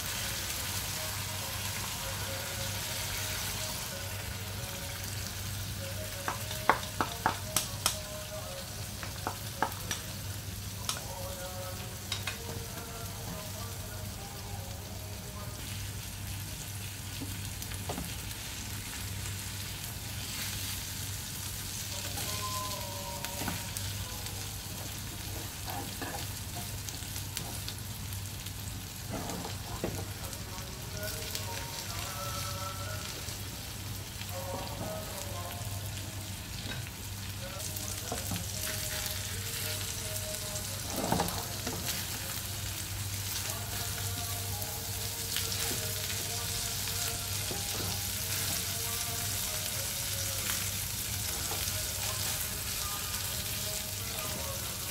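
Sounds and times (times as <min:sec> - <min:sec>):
food sizzling in a frying pan: 0:00.0 - 0:54.9
wooden spatula knocking on pan: 0:06.3 - 0:07.4, 0:09.0 - 0:09.9.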